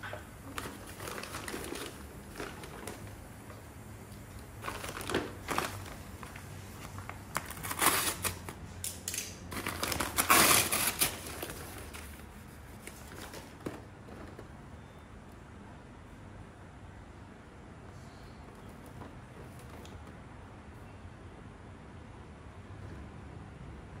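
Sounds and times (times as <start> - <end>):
paper bag crinkling: 0.4 - 3.6, 4.3 - 8.6, 9.5 - 14.9.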